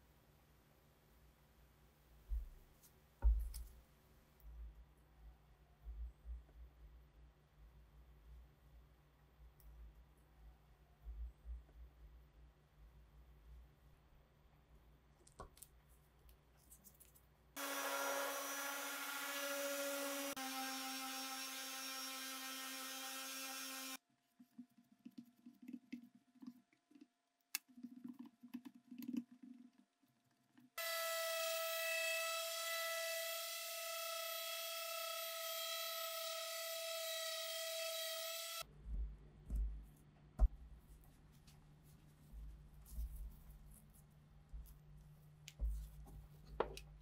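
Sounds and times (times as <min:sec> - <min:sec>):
electric sander whine: 0:17.6 - 0:24.0
power tool running: 0:17.6 - 0:24.0, 0:30.8 - 0:38.6.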